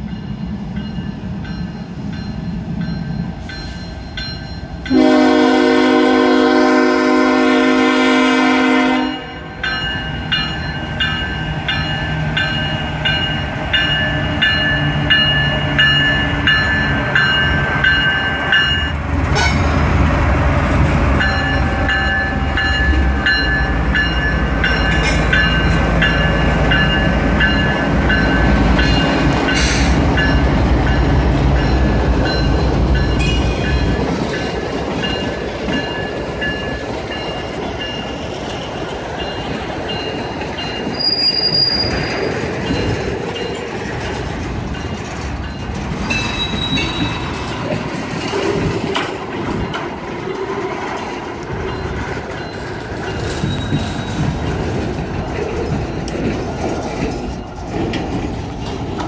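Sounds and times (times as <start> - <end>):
diesel locomotive engines rumbling: 0.0 - 59.0
train cars rattling on rails: 0.0 - 59.0
high-pitched wheel squeals: 40.9 - 42.8, 46.1 - 47.2.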